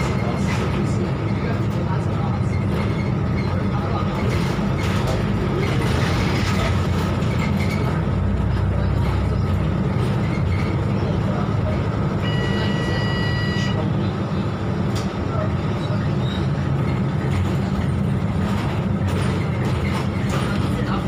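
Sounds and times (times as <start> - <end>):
diesel bus engine running: 0.0 - 21.0
road noise and rumble: 0.0 - 21.0
steady electronic beep: 12.2 - 13.8.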